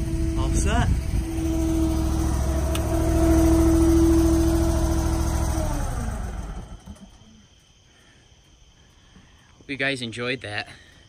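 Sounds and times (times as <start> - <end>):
firewood processor engine winding down: 0.0 - 7.5.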